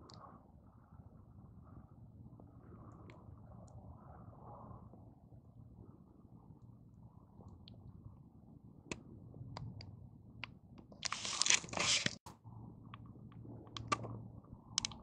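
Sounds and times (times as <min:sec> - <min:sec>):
rustling and crunching handling noise: 0:11.0 - 0:12.3
sharp clicks: 0:13.7 - 0:14.1, 0:14.8 - 0:15.0.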